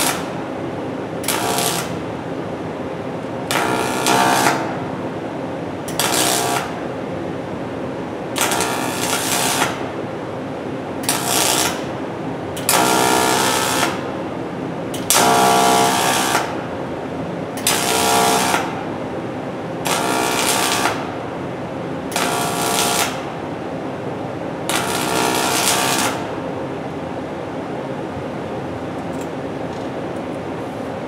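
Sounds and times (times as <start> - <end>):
welding arc bursts: 1.2 - 2.0, 3.5 - 4.7, 5.9 - 6.8, 8.4 - 9.8, 12.7 - 14.0, 17.6 - 18.8, 19.9 - 21.1, 22.1 - 23.3, 24.7 - 26.3.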